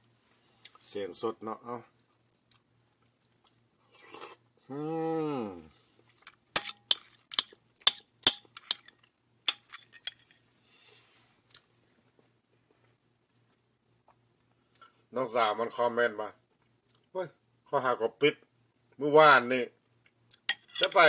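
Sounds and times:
person humming: 4.7s - 5.7s
metal spoon clinking on bowl: 20.5s - 21.0s.

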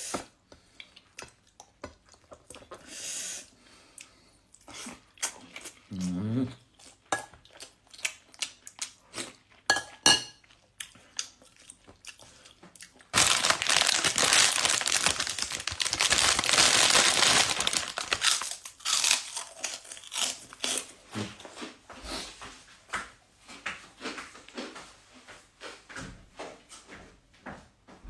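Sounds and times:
loud crinkling rustle: 13.2s - 18.6s.

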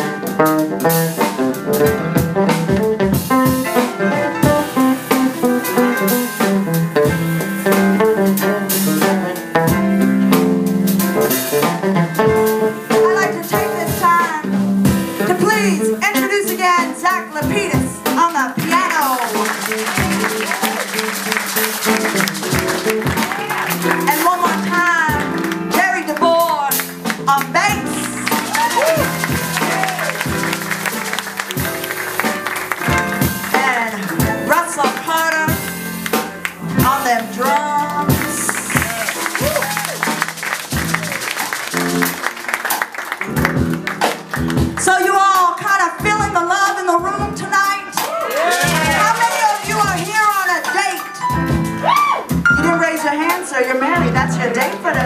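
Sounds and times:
electric bass guitar: 0.0s - 15.7s, 35.3s - 41.4s
jazz piano: 0.0s - 55.0s.

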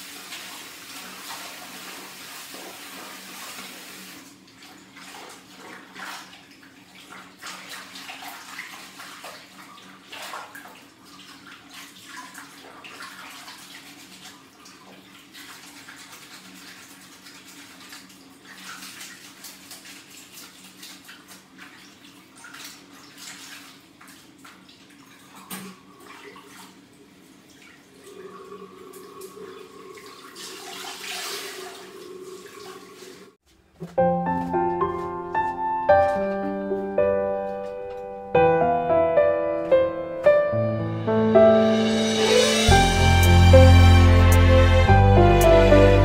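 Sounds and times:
water sloshing and splashing: 4.3s - 33.4s.

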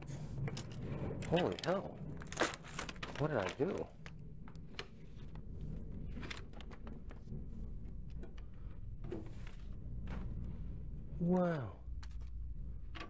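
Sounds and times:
low steady rumble: 0.0s - 13.0s
envelopes shuffled and rustled: 0.7s - 10.9s.

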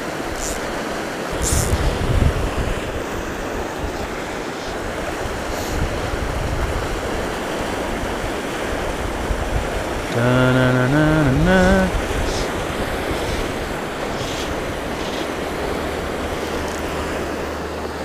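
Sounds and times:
wind buffeting microphone: 1.3s - 10.2s, 10.8s - 18.0s
low hummed tone: 10.1s - 18.0s.

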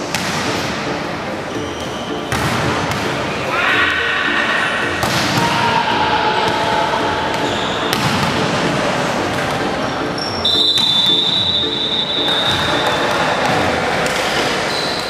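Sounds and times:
shoe squeaks on court floor: 1.5s - 2.4s, 10.2s - 13.4s, 14.2s - 15.0s.

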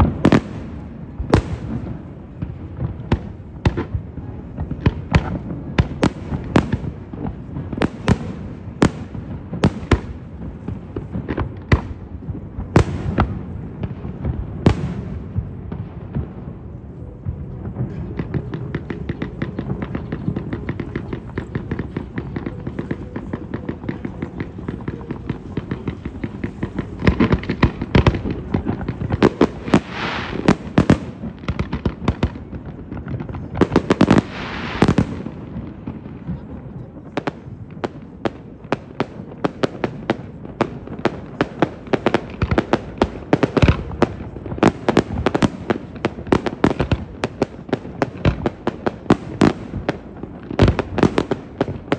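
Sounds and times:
fireworks bangs and crackles: 0.0s - 51.9s.

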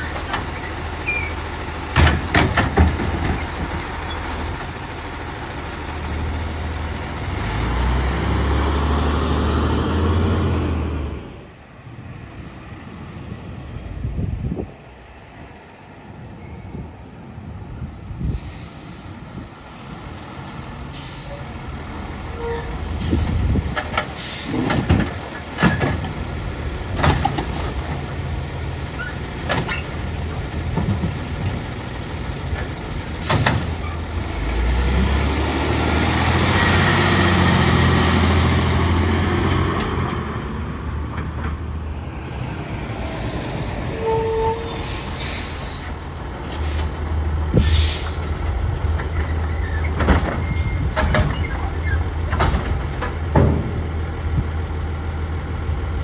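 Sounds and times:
garbage truck diesel engine: 0.0s - 56.0s
air brake hisses: 24.2s - 24.6s, 47.5s - 48.2s.

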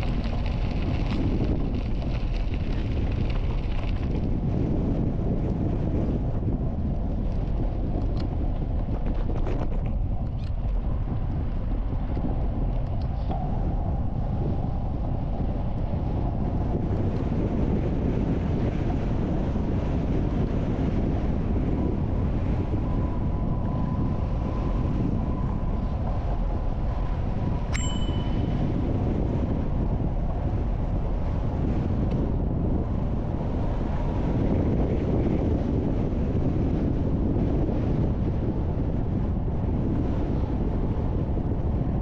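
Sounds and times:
bicycle rolling on gravel: 0.0s - 12.9s, 13.6s - 41.9s
wind buffeting microphone: 0.0s - 42.0s
metallic ding: 27.8s - 28.6s.

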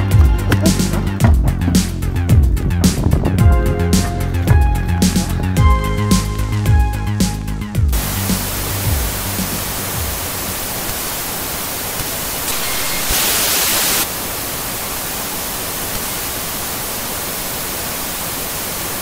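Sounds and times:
television static hiss: 8.0s - 19.0s.

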